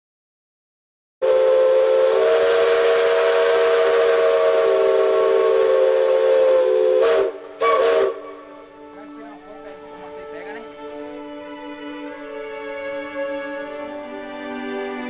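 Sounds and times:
steam hissing: 1.2s - 11.2s
steam whistle chord: 1.2s - 11.2s.

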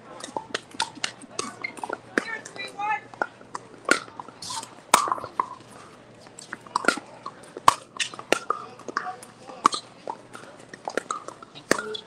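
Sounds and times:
paddles striking ball: 6.4s - 12.0s.

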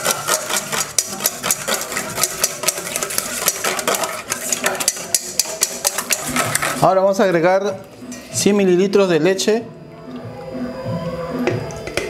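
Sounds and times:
whisk clicking against metal bowl: 0.0s - 7.3s.

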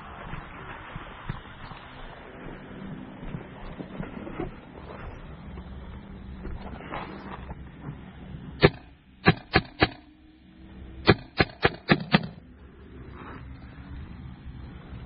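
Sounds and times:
paintball marker shots: 8.6s - 10.1s, 11.1s - 12.4s.

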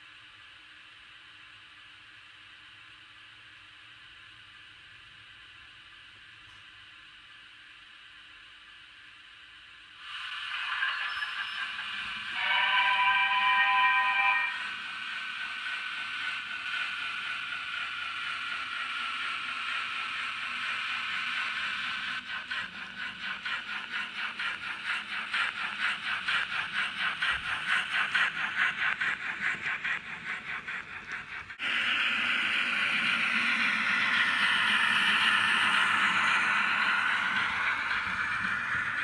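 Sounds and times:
model locomotive steam hiss: 0.0s - 39.0s
model locomotive chuffing: 10.0s - 39.0s.

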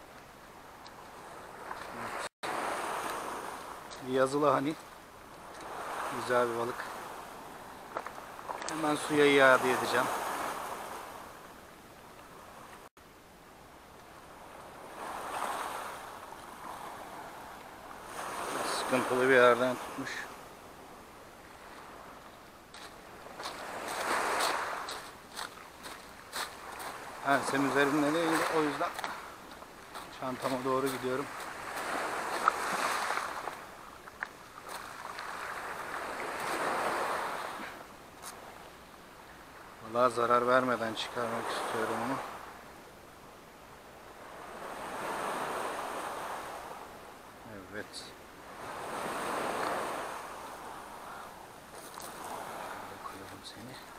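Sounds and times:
waves washing over pebbles: 5.4s - 11.2s, 14.4s - 20.4s, 22.8s - 37.8s, 48.4s - 51.1s, 51.9s - 53.9s
footsteps on stones: 22.7s - 27.0s, 28.3s - 35.3s, 51.7s - 52.3s.

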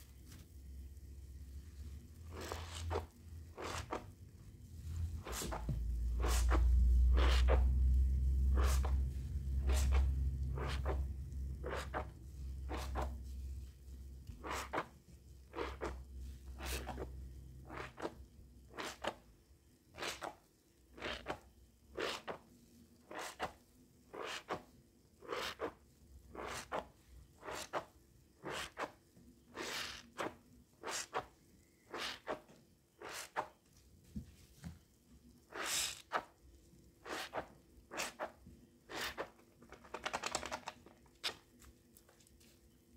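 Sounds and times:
hand squishing soap foam: 2.2s - 4.1s, 8.5s - 19.2s, 37.0s - 40.0s.

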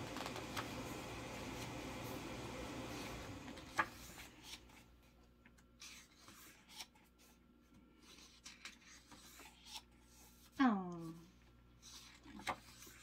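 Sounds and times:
paper rustling: 0.0s - 0.9s, 2.9s - 5.2s, 11.8s - 13.0s.

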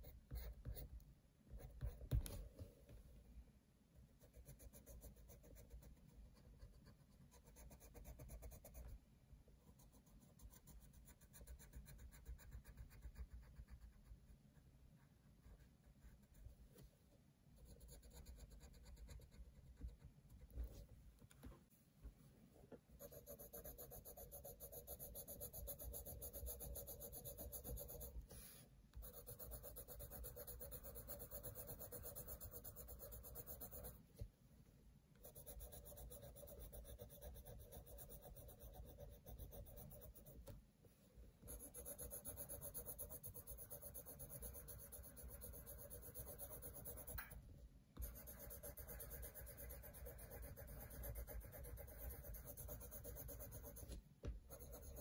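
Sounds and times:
pencil scratching on paper: 0.0s - 1.0s, 4.2s - 9.0s, 9.6s - 14.4s, 17.6s - 20.9s, 23.0s - 34.0s, 35.2s - 40.6s, 41.4s - 47.4s, 48.0s - 55.0s.

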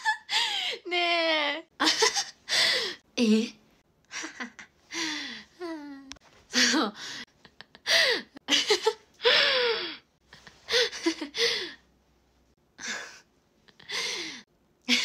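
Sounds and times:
woman laughing: 0.0s - 0.8s, 1.8s - 2.4s, 4.1s - 4.7s, 5.6s - 9.0s.

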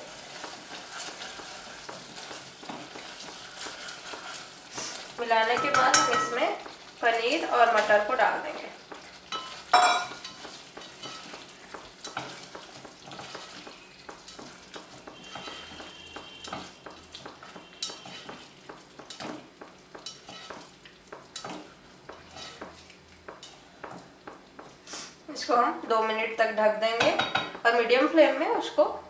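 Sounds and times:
gravy sizzling: 0.0s - 29.0s
spatula scraping a pot: 0.3s - 5.2s, 12.0s - 20.8s, 21.4s - 23.6s.

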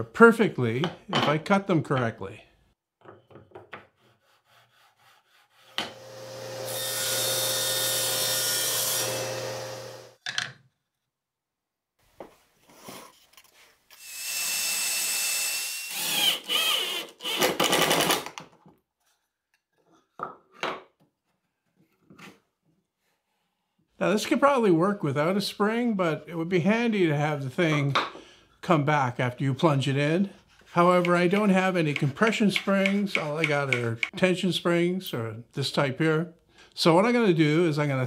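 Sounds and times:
power tool running: 5.9s - 10.2s.

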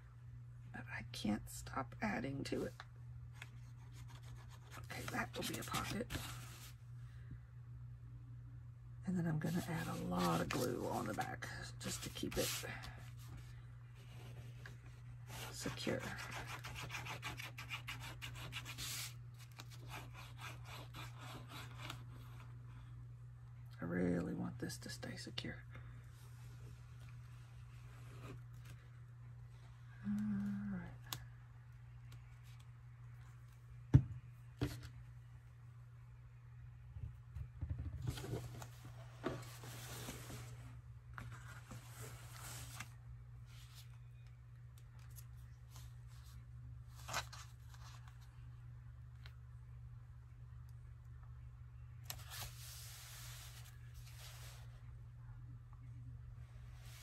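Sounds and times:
steady low hum: 0.0s - 57.0s.

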